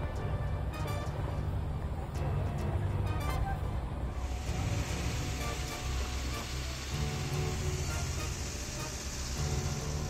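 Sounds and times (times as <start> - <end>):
music with low bass line: 0.0 - 10.0
even hiss of noise: 4.0 - 10.0.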